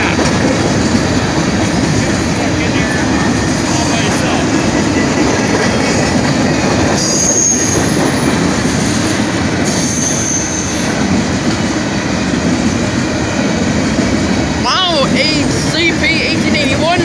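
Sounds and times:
train wheels rumbling on rails: 0:00.0 - 0:17.0
high-pitched wheel squeals: 0:07.0 - 0:08.4, 0:09.7 - 0:11.0.

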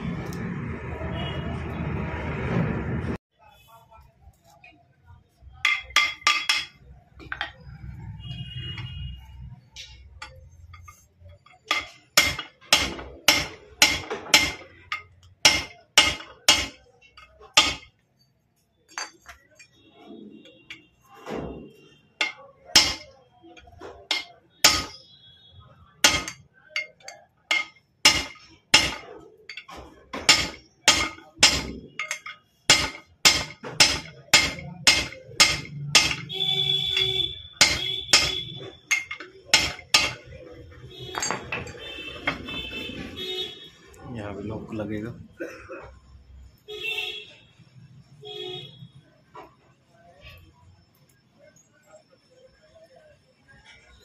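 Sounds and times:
hammer striking metal: 0:05.6 - 0:07.6, 0:09.8 - 0:18.0, 0:20.7 - 0:25.1, 0:26.0 - 0:42.9.

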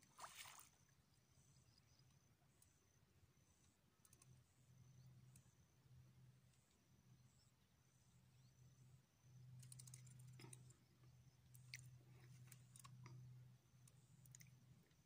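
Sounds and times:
faint low hum: 0:00.0 - 0:15.0
light clicks: 0:04.0 - 0:04.4, 0:09.6 - 0:10.7.

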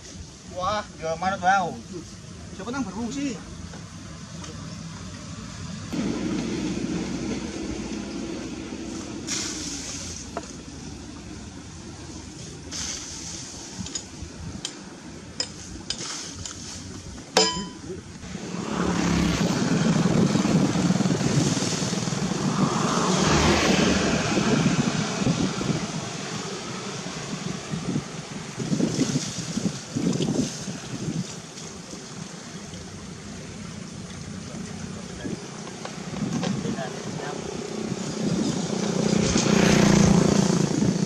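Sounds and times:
rough rumbling engine: 0:02.5 - 0:15.7, 0:17.0 - 0:29.7, 0:32.1 - 0:41.0
diesel engine running: 0:05.0 - 0:12.4
metallic clang: 0:17.4 - 0:17.9.

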